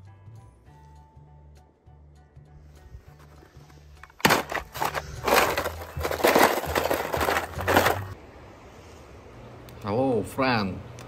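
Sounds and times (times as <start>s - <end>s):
toy cars crashing and clattering: 4.0s - 8.2s.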